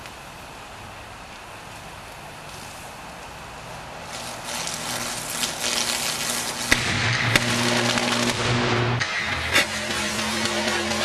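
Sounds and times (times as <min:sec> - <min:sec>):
electric arc crackling and popping: 0:04.0 - 0:11.0
steady low hum: 0:04.1 - 0:11.0
sharp bangs: 0:04.5 - 0:11.0.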